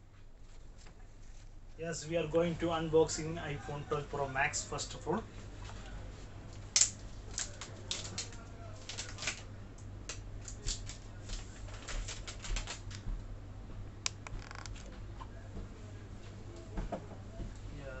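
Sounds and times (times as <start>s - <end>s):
packaging clicks and rustles: 6.8s - 9.5s, 10.4s - 13.0s.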